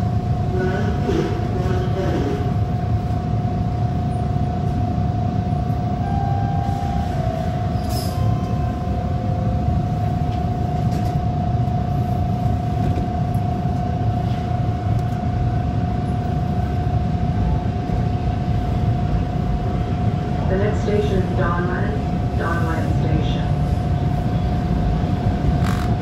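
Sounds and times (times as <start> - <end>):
constant whine: 0.0 - 26.0
subway train low rumble: 0.0 - 26.0
brief tone: 6.0 - 8.9.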